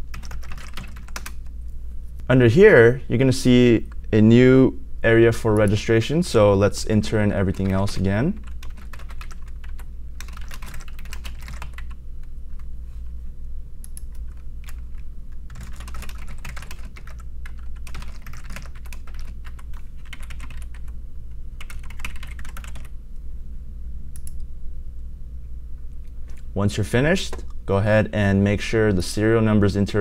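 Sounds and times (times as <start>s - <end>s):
computer keyboard typing: 0.0s - 1.5s, 7.3s - 12.7s, 13.8s - 20.9s, 21.6s - 22.9s
steady low hum: 0.0s - 30.0s.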